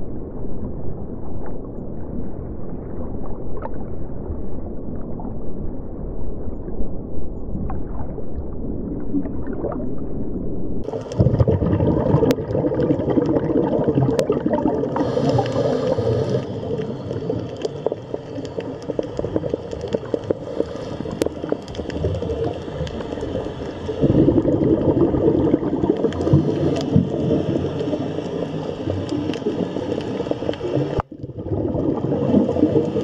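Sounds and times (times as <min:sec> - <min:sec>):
faint crackling clicks: 0:10.8 - 0:33.0
underwater bubbling of exhaled breath: 0:10.8 - 0:33.0
regulator inhalation hiss: 0:14.9 - 0:24.4, 0:26.1 - 0:31.0.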